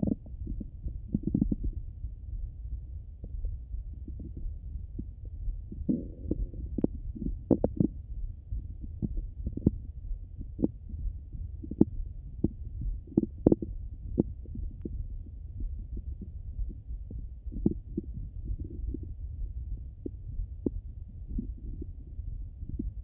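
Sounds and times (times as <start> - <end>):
stomach clicks and pops: 0.0 - 1.8, 5.7 - 7.9, 11.6 - 15.0, 15.6 - 19.2, 20.0 - 23.0
stomach gurgle: 0.0 - 1.9, 3.2 - 23.0
low steady rumble: 0.0 - 23.0.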